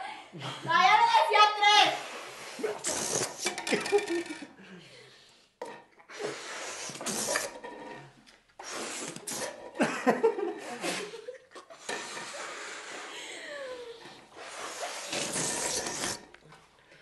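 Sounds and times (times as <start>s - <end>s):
people blowing up balloons: 1.9s - 9.9s, 10.5s - 16.7s
balloons squeaking: 2.8s - 3.6s, 6.3s - 7.6s, 8.6s - 9.6s, 14.4s - 16.3s.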